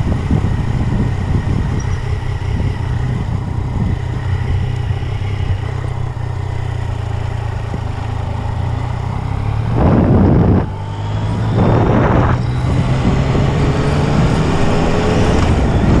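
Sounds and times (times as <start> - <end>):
motorcycle engine running: 0.0 - 16.0
wind rushing: 9.4 - 16.0.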